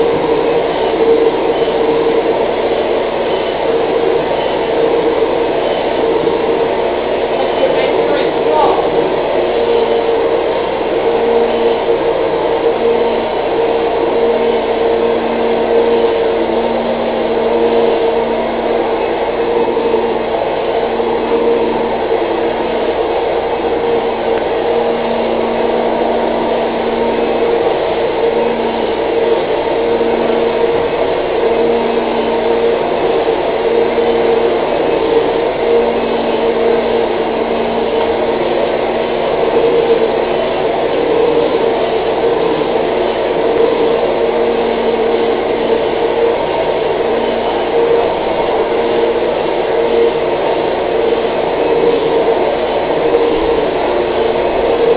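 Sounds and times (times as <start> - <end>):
vacuum cleaner running: 0.0 - 54.9.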